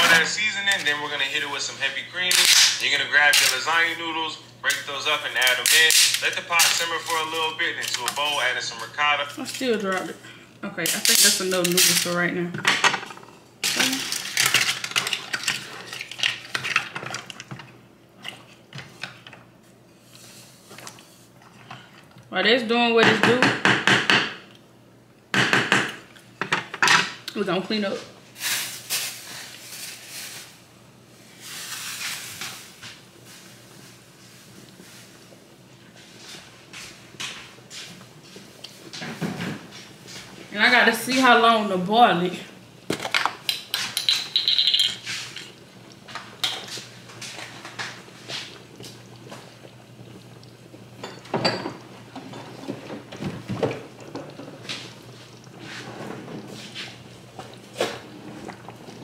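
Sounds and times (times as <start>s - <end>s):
items knocking and clinking: 25.3s - 27.2s, 42.9s - 45.0s, 51.0s - 54.5s.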